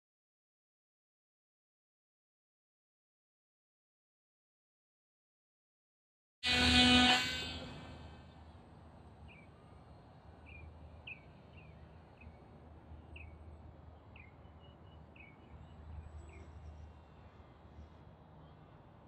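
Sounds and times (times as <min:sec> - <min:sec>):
faint bird chirping: 0:09.2 - 0:18.8.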